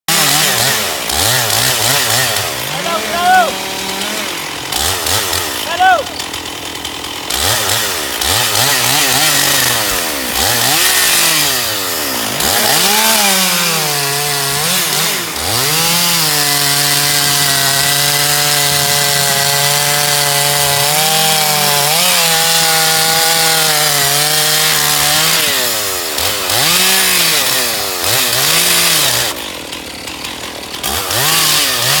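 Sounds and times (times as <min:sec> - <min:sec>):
chainsaw revving and cutting log: 0:00.0 - 0:32.0.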